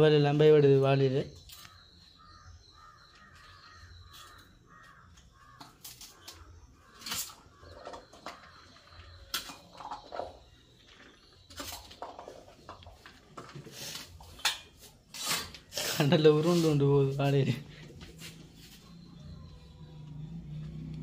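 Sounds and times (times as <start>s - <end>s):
distant crows cawing: 1.4s - 11.4s.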